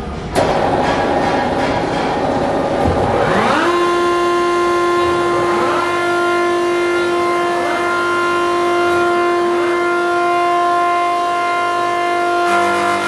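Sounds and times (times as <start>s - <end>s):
low hum: 0.0s - 12.4s
wood shaving machine whine: 2.5s - 13.0s.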